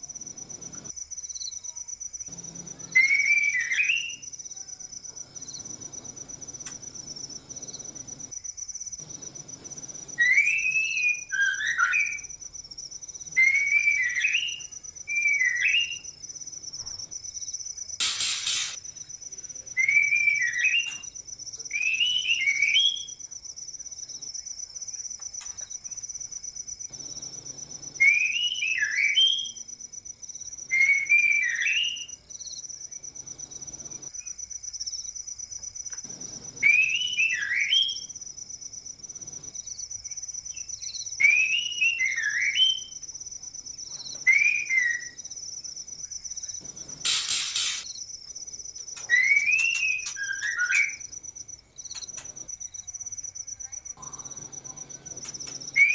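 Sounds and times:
crickets trilling: 0.0s - 55.9s
birds whistling calls: 2.8s - 4.2s, 10.1s - 12.3s, 13.3s - 16.1s, 18.0s - 18.8s, 36.6s - 38.1s, 46.7s - 47.9s, 49.0s - 51.1s, 55.2s - 55.9s
hissing noise burst: 18.0s - 18.8s, 46.7s - 47.9s.

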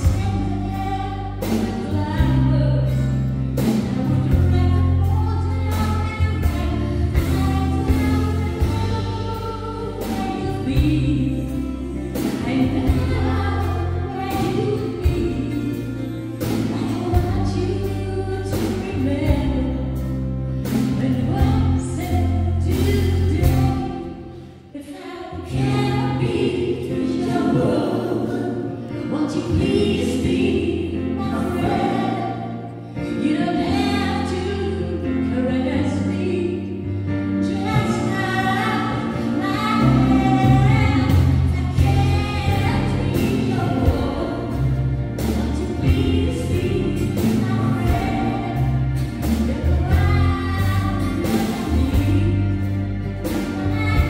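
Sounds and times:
deep bass notes: 0.0s - 24.7s, 25.5s - 54.0s
woman singing lead: 0.0s - 54.0s
voices singing harmony: 26.1s - 32.8s, 37.7s - 52.5s.

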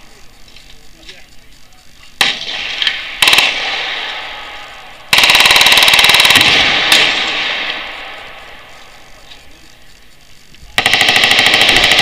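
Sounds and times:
gunshot echo: 2.2s - 4.6s, 6.3s - 8.5s
machine guns firing: 2.2s - 8.6s, 10.7s - 12.0s.

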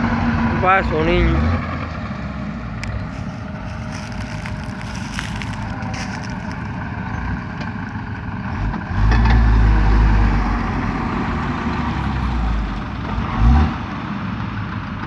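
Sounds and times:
heavy vehicle engines labouring: 0.0s - 15.0s
engine revving: 8.4s - 14.1s.

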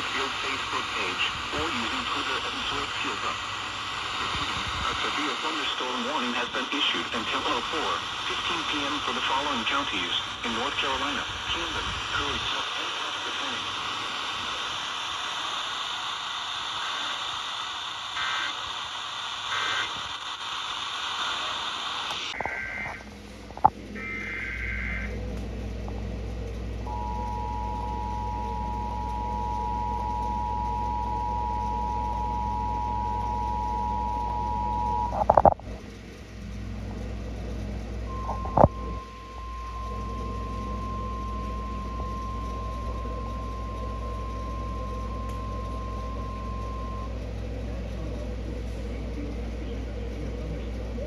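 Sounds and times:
low steady hum: 0.0s - 19.4s, 20.0s - 51.0s
single-tone warning alarm: 24.0s - 25.1s, 26.9s - 35.2s, 38.1s - 47.2s
click: 45.2s - 45.4s.

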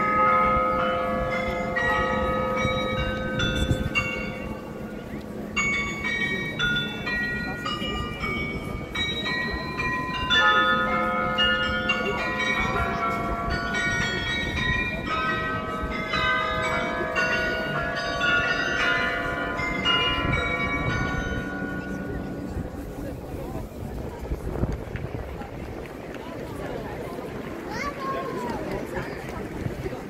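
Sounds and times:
tuned bells playing a tune: 0.0s - 22.6s.

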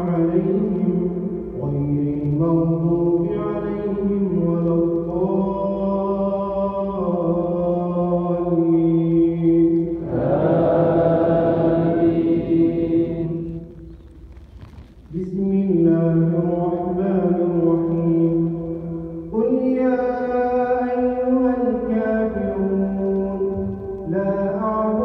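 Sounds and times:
man chanting prayer: 0.0s - 13.7s, 15.1s - 25.0s
congregation voices responding: 9.8s - 13.8s.

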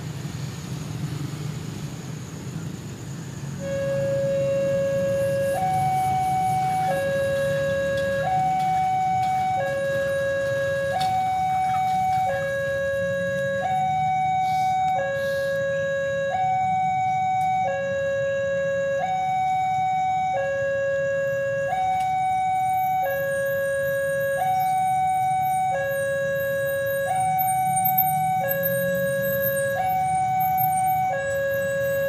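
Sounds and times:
two-tone crossing alarm: 3.6s - 32.0s.

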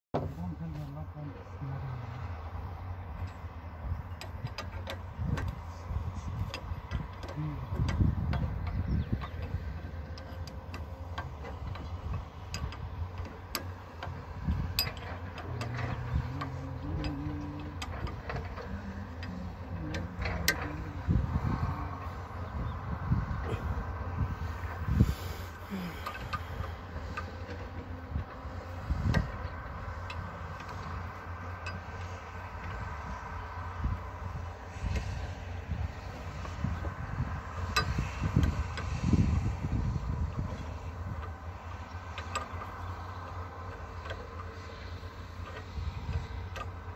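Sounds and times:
low rumble: 0.3s - 31.2s
wind on microphone: 1.8s - 31.2s, 32.0s - 43.2s
metallic clicks of hand tools: 6.5s - 20.8s.

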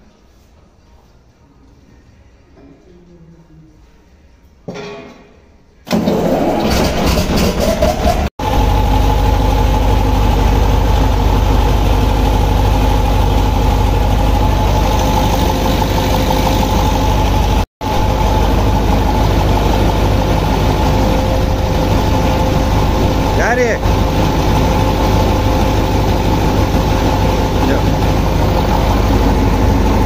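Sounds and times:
tractor diesel engine idling: 8.4s - 30.0s.

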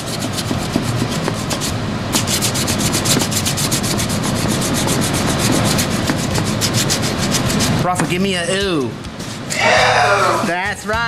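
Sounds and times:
sandpaper rasping strokes: 0.0s - 7.8s.

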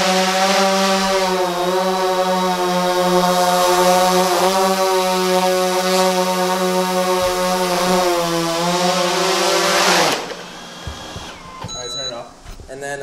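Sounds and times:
drone rotors buzzing: 0.0s - 13.0s.

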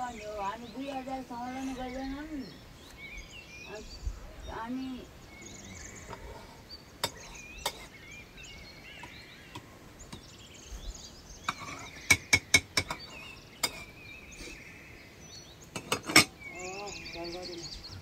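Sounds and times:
birds chirping: 0.0s - 18.0s
metal utensils and pots clinking: 6.1s - 8.0s, 11.5s - 14.0s, 15.7s - 16.4s.

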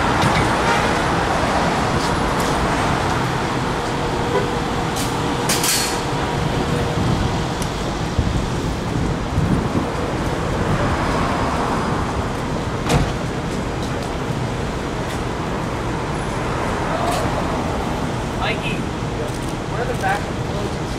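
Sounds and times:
street traffic noise: 0.0s - 20.9s.

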